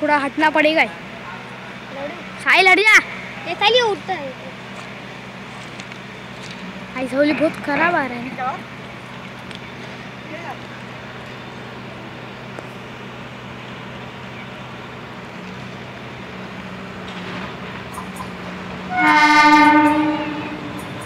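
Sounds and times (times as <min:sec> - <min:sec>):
train horn blast: 0:18.8 - 0:20.9.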